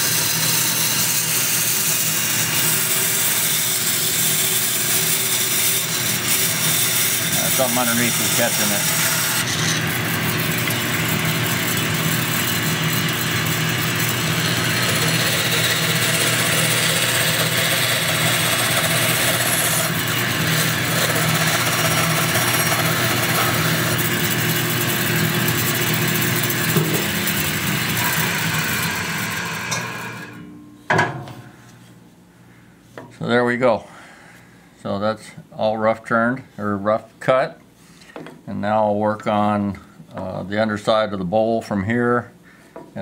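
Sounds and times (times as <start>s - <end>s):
bandsaw cutting wood: 0.0s - 30.4s.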